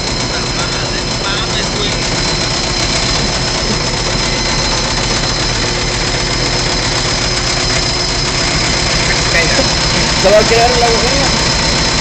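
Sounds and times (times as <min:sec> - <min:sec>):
washing machines droning: 0:00.0 - 0:12.0.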